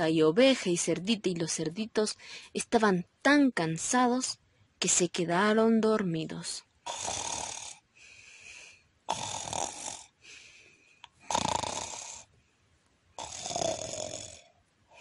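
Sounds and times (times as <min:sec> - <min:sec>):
loud rasping snores: 0:06.8 - 0:07.8, 0:09.1 - 0:10.2, 0:11.2 - 0:12.3, 0:13.2 - 0:14.5.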